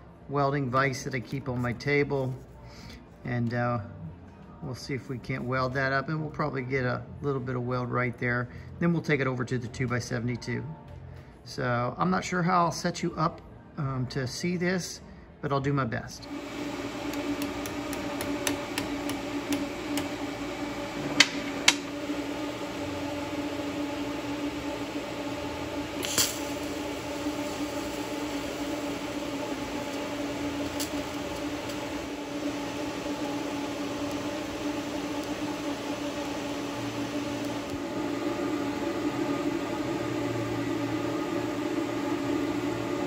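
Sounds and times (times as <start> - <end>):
welder arc buzzing hum: 16.2 - 43.0.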